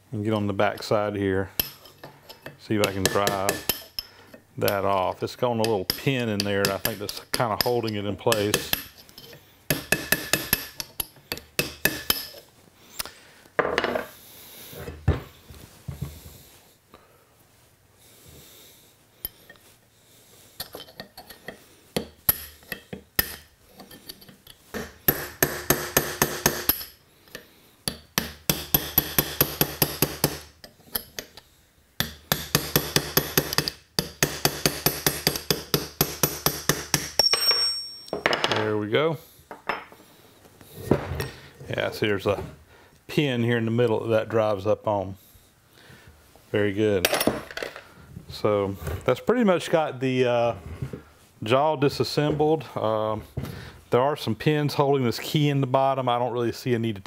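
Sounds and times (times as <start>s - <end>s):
hammer tapping metal punch: 1.6s - 4.1s, 9.7s - 12.4s, 27.9s - 31.3s, 32.0s - 38.4s.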